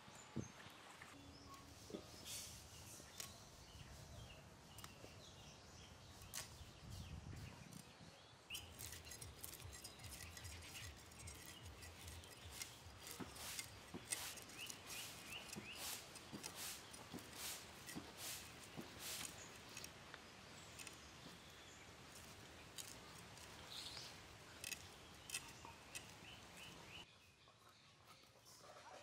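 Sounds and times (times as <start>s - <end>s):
faint bird chirps: 0.0s - 29.0s
rasping scrapes of fish scaling: 8.5s - 20.0s, 22.1s - 27.0s.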